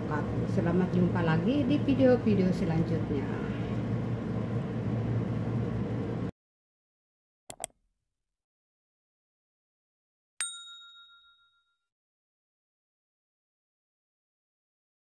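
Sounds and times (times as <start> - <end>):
room hum: 0.0 - 6.3
mouse clicks: 7.5 - 7.7
notification bell chime: 10.4 - 11.8.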